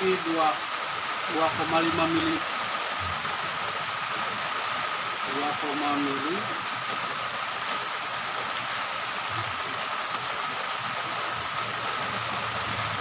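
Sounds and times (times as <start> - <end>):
rain falling: 0.0 - 13.0.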